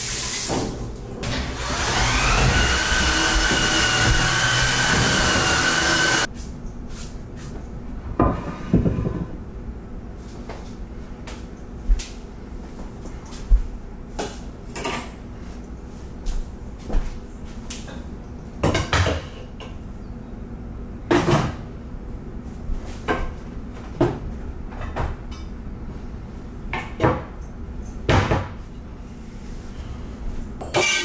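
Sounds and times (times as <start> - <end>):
cabinet doors opening and shutting: 0.6 - 6.2.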